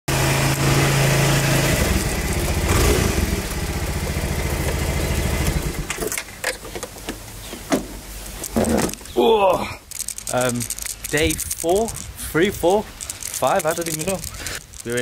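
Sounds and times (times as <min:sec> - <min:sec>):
small scooter engine running: 0:00.1 - 0:06.1.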